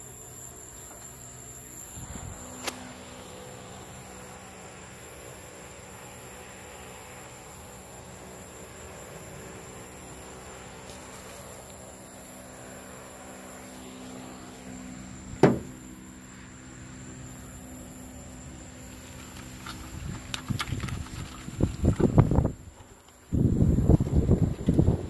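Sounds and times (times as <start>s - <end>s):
insects at night: 0.0s - 25.0s
low steady hum: 0.0s - 25.0s
sharp knocks and clicks: 15.4s - 15.8s.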